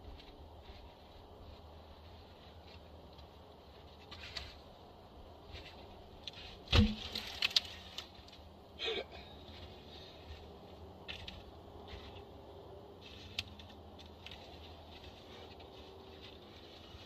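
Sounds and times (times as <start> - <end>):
branches rustling: 0.0 - 17.0
branches snapping: 5.5 - 8.5, 13.0 - 17.0
heavy thump: 6.7 - 7.2.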